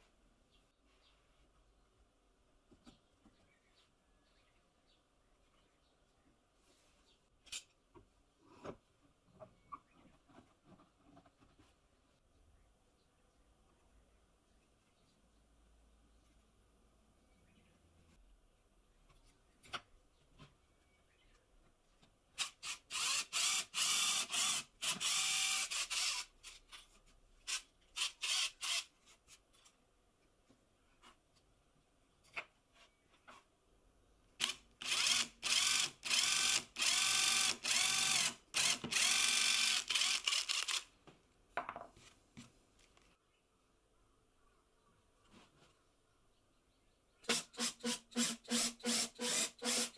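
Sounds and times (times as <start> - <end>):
power drill boring into plywood: 22.4 - 26.3, 34.4 - 40.8, 47.3 - 49.9.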